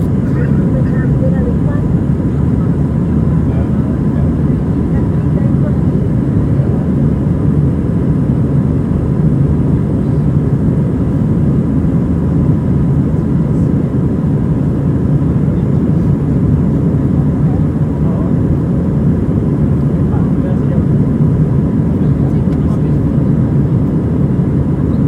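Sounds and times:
faint steady whine: 0.0s - 25.0s
jet engine and airflow drone: 0.0s - 25.0s.

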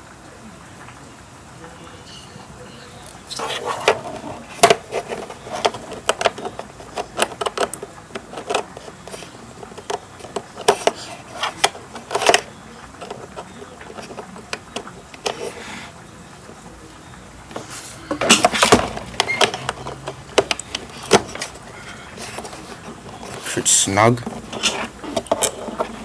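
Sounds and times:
cable clicking and rattling: 3.3s - 15.5s, 18.1s - 26.0s.

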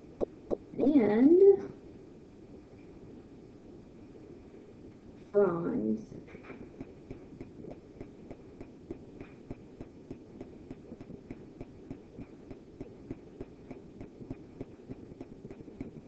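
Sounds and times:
low steady hum: 0.0s - 16.0s
stylus tapping on a screen: 6.7s - 16.0s.

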